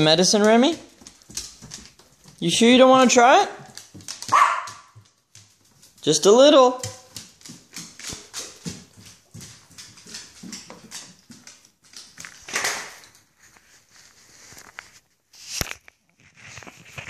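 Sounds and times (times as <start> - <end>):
dog claws clicking on wooden floor: 0.0 - 13.3.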